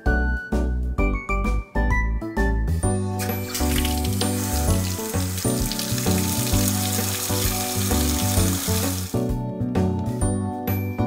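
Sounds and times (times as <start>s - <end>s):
background music: 0.0s - 11.0s
water spraying from faucet: 3.2s - 9.2s.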